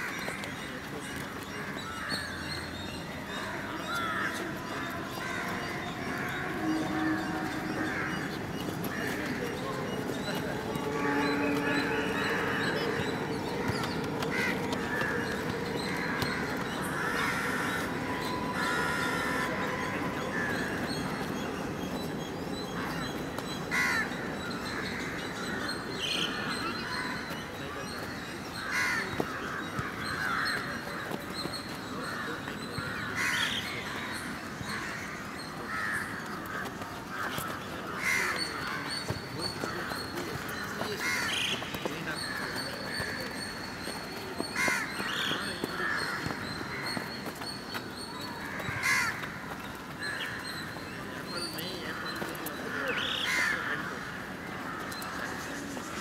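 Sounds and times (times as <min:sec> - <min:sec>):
crows cawing: 0:03.3 - 0:09.6, 0:10.8 - 0:21.2, 0:23.7 - 0:27.3, 0:28.6 - 0:47.6, 0:48.2 - 0:50.8, 0:51.7 - 0:55.8.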